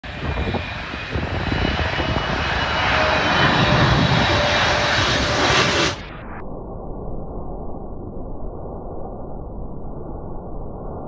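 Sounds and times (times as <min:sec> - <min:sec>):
jet roar: 0:00.0 - 0:06.5.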